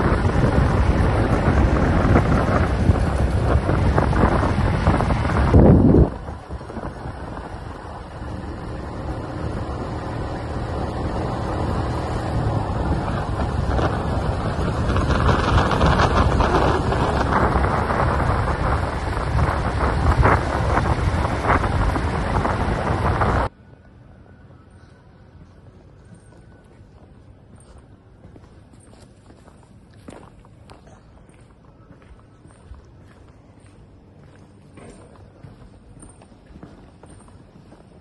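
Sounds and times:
wind rushing over microphone: 0:00.0 - 0:23.5
vehicle rumble at speed: 0:00.0 - 0:38.0.

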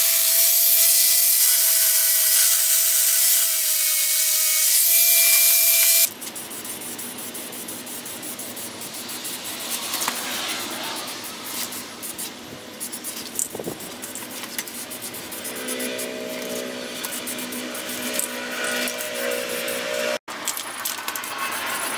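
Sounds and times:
angle grinder grinding metal: 0:00.0 - 0:06.1, 0:06.8 - 0:20.2
aerosol spray paint hissing: 0:05.6 - 0:14.1.

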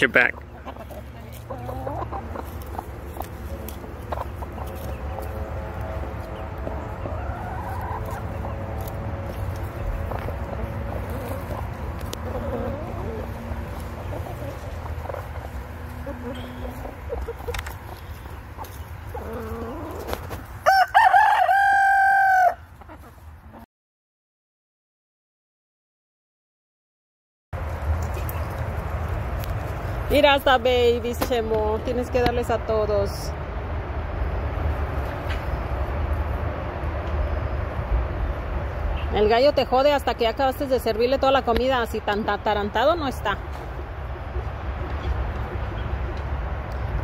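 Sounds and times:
chickens clucking: 0:00.0 - 0:23.7, 0:34.1 - 0:47.0
rooster crowing: 0:20.6 - 0:22.7.

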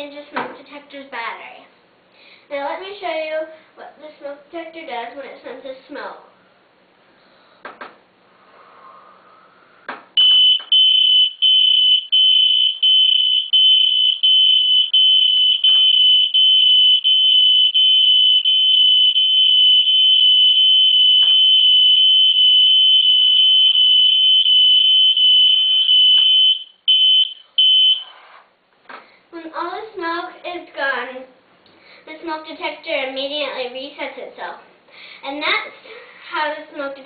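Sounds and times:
smoke alarm shrill tone: 0:10.2 - 0:28.2
smoke detector short beeps: 0:23.2 - 0:28.1.

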